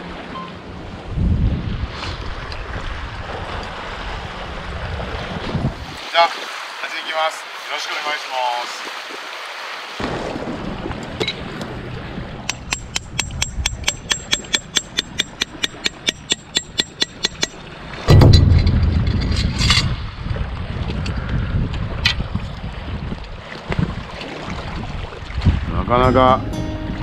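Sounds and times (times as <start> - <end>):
wind buffeting microphone: 0.7 - 6.0, 17.6 - 27.0.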